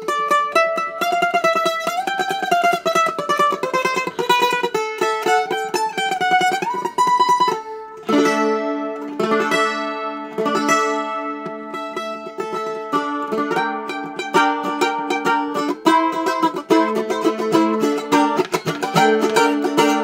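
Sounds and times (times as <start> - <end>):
mandolin picked melody: 0.0 - 20.0
mandolin strummed chords: 0.0 - 20.0.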